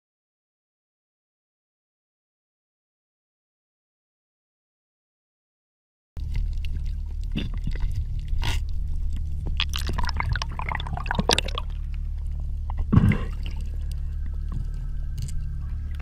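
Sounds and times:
bubbling clicks of moving water: 6.2s - 16.0s
low underwater hum: 6.2s - 16.0s.

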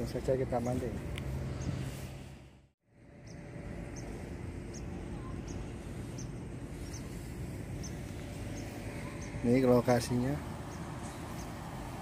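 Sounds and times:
river background noise: 0.0s - 12.0s
faint high chirp: 4.7s - 9.6s.

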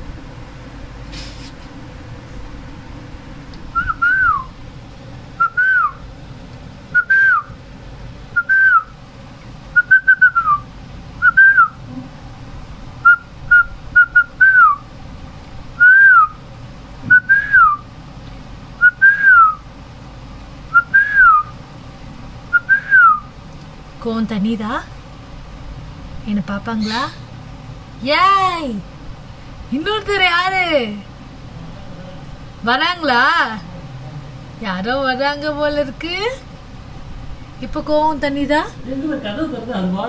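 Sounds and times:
short gliding whistles: 3.7s - 4.6s, 5.4s - 6.0s, 7.0s - 7.6s, 8.4s - 8.9s, 9.8s - 10.6s, 11.2s - 11.8s, 13.0s - 14.8s, 15.8s - 16.4s, 17.1s - 17.8s, 18.8s - 19.6s, 20.7s - 21.5s, 22.5s - 23.3s.

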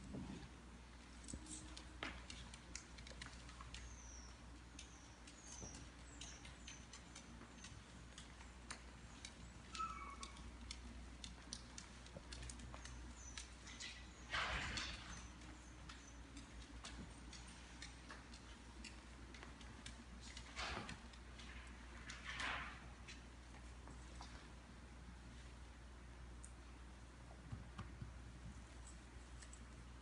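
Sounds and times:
dog claws clicking on tile: 1.2s - 23.3s.

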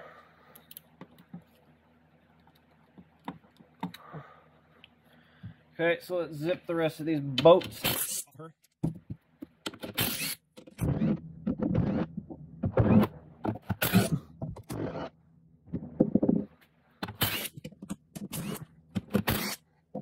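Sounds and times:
cordless drill running: 10.0s - 12.1s, 14.7s - 15.1s.

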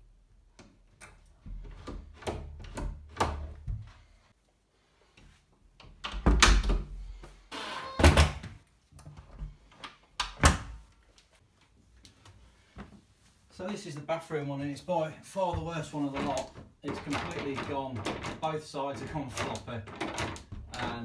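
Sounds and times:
door handle and latch clacking: 16.2s - 18.4s, 19.0s - 21.0s.

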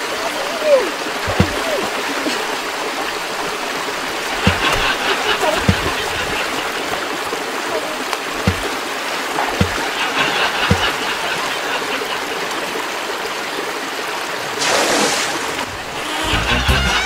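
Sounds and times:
stream water rushing: 0.0s - 17.0s
soft low thumps: 1.2s - 1.8s, 4.2s - 7.0s, 8.4s - 8.8s, 9.5s - 9.8s.

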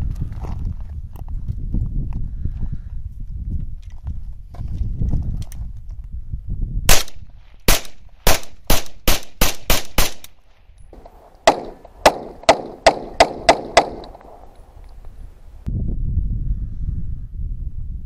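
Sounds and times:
submachine gun single shots: 6.9s - 10.4s, 11.0s - 14.8s.

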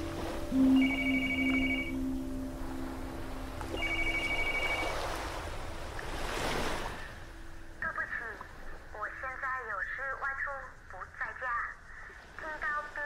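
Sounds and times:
telephone ringing warbling trill: 0.0s - 3.0s, 3.7s - 5.2s
low drone: 0.0s - 9.4s
surf washing: 0.0s - 9.8s.

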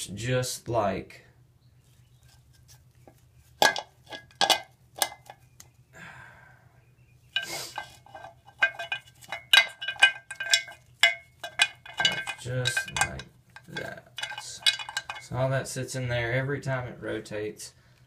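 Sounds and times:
metal parts clinking: 7.4s - 15.4s.

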